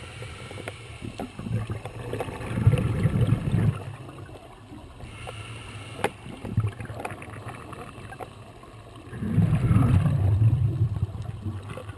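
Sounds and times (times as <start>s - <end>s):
regulator exhale bubbling: 0.0s - 4.3s, 9.0s - 11.9s.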